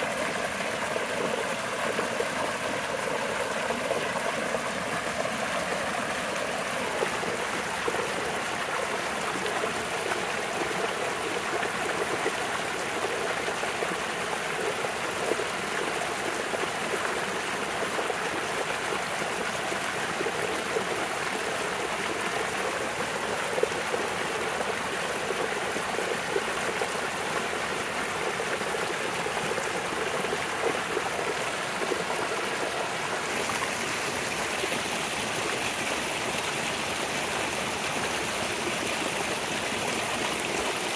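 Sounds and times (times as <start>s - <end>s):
creek rushing over rocks: 0.0s - 40.9s.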